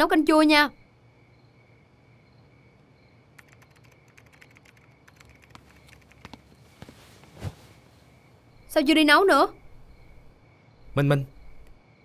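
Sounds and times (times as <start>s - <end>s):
typing on computer keyboard: 3.4s - 6.4s.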